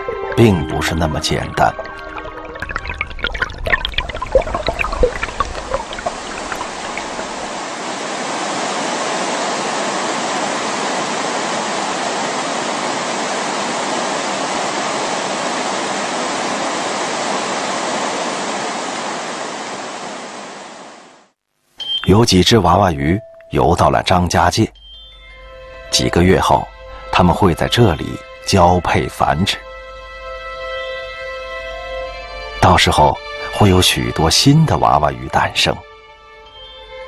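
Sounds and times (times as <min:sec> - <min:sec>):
stream splashing over rocks: 0:00.0 - 0:20.8
waterfall rushing: 0:00.0 - 0:21.2.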